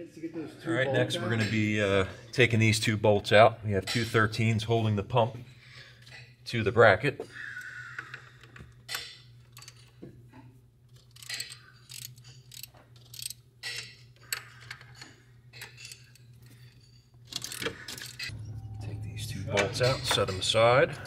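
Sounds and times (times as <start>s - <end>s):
metallic clinks and rattles: 8.9s - 18.7s
ratchet wrench clicking: 10.9s - 14.8s
steady low hum: 18.2s - 21.0s.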